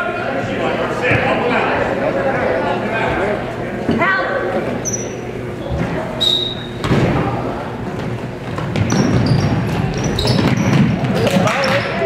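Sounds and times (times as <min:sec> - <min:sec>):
spectators chattering and calling: 0:00.0 - 0:12.0
sneaker squeaks: 0:04.8 - 0:07.0, 0:08.0 - 0:12.0
basketball bouncing on hardwood: 0:08.0 - 0:11.9.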